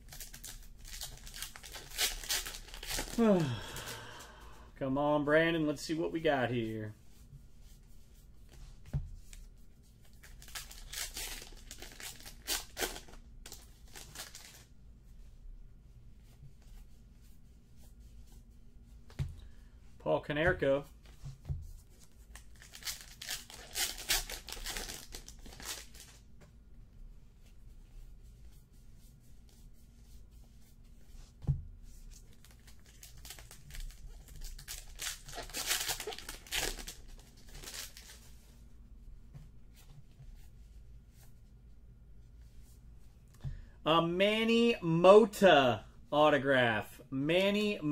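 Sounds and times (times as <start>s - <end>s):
card pack wrapper crinkling and tearing: 0.0s - 4.2s, 10.2s - 14.7s, 22.3s - 26.2s, 32.3s - 38.2s.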